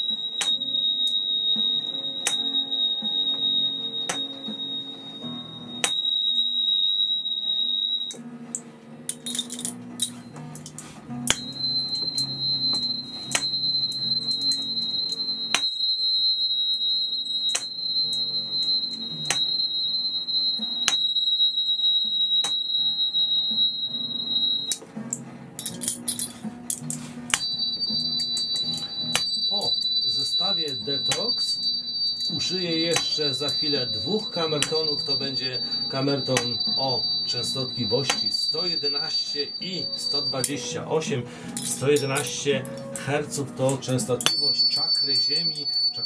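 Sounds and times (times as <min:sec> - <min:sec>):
high steady ringing tone: 0:00.0 - 0:08.2, 0:11.3 - 0:24.8, 0:27.3 - 0:46.0
low ringing tones: 0:00.0 - 0:08.2, 0:11.3 - 0:24.8, 0:27.3 - 0:43.0, 0:44.1 - 0:46.0
tuning fork taps: 0:00.1 - 0:05.0, 0:11.3 - 0:19.9, 0:20.5 - 0:24.8, 0:27.3 - 0:40.6, 0:44.2 - 0:45.8.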